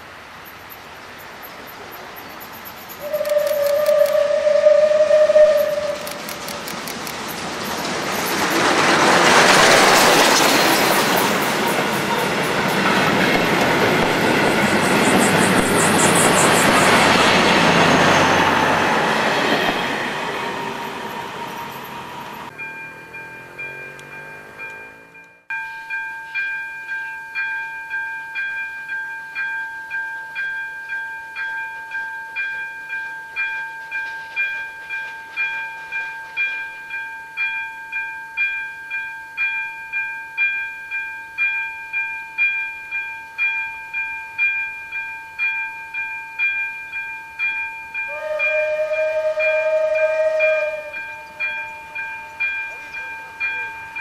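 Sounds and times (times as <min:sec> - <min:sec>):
level-crossing warning bell: 0:00.0 - 0:54.0
steam locomotive whistle: 0:02.9 - 0:06.3, 0:14.7 - 0:22.5, 0:48.0 - 0:52.6.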